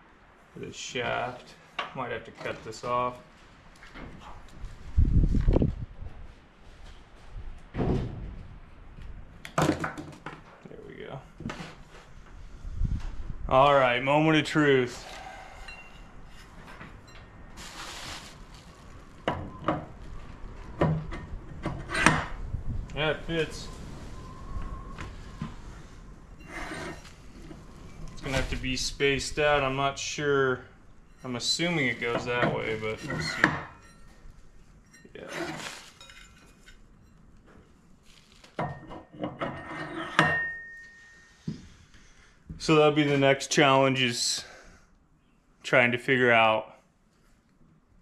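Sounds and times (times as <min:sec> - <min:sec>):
soft scraping rustle: 0:01.0 - 0:07.6, 0:10.6 - 0:14.0, 0:14.6 - 0:20.7, 0:22.4 - 0:38.6, 0:47.0 - 0:47.6
thump: 0:07.7 - 0:08.4
ringing metallic clink: 0:40.1 - 0:41.4.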